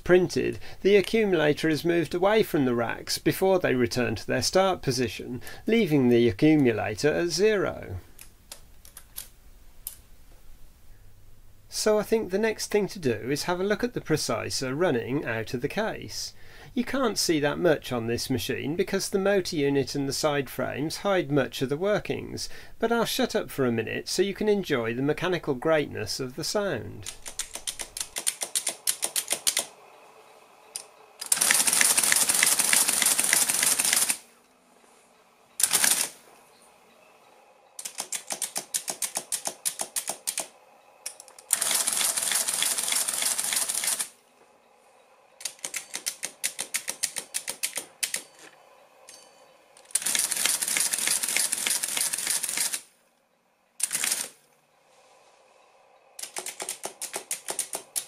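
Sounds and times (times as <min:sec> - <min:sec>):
rapid mechanical ticking: 0:27.0 - 0:29.8, 0:30.7 - 0:34.2, 0:35.6 - 0:36.1, 0:37.8 - 0:44.1, 0:45.4 - 0:48.3, 0:49.8 - 0:52.8, 0:53.8 - 0:54.3, 0:56.2 - 0:58.0.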